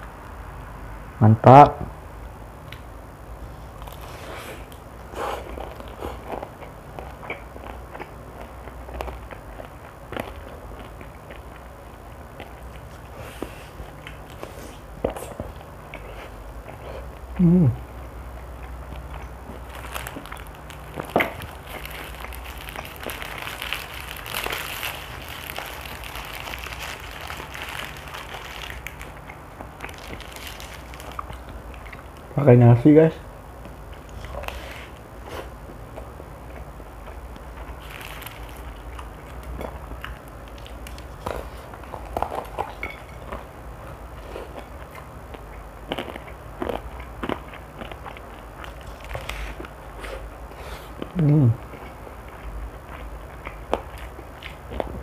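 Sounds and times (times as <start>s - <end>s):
steady low hum: 0.0s - 55.0s
chewing: 3.7s - 32.3s, 33.6s - 55.0s
fried chicken crackling: 18.7s - 32.3s
paper wrapper crinkling: 19.6s - 29.2s, 29.8s - 31.4s, 37.7s - 39.5s.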